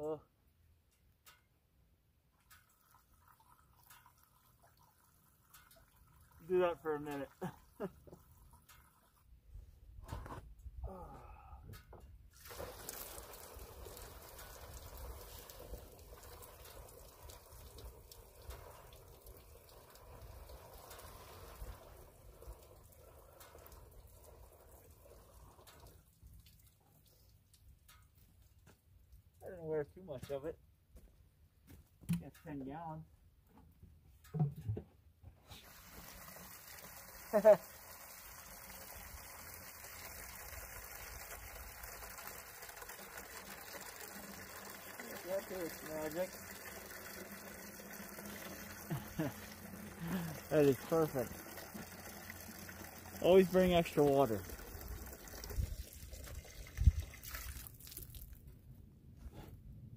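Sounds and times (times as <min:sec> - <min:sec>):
water pouring into plastic tank: 0:02.4 - 0:09.2, 0:12.3 - 0:27.8, 0:35.5 - 0:58.6.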